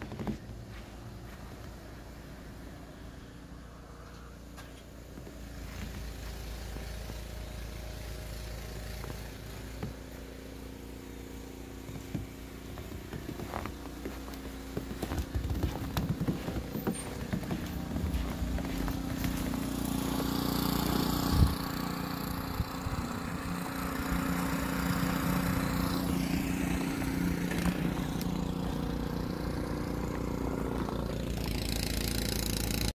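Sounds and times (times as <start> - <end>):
small engine running: 0.1 - 32.9.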